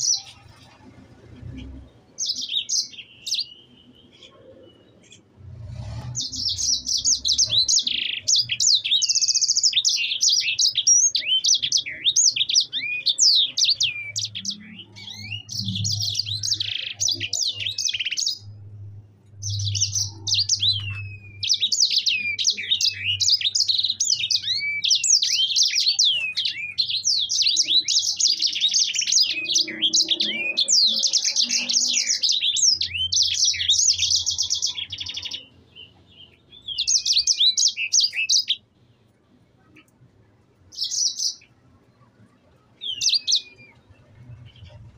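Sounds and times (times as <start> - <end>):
songbird singing trills: 0.0 - 38.7, 40.7 - 44.9.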